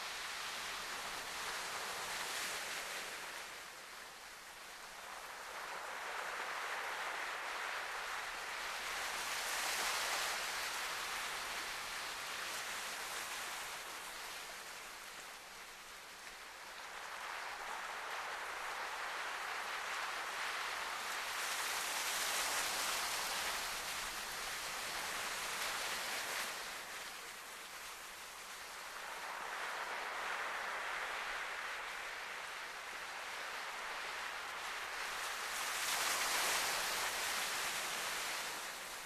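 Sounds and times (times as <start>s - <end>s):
sea surf on rocky shore: 16.8s - 39.0s.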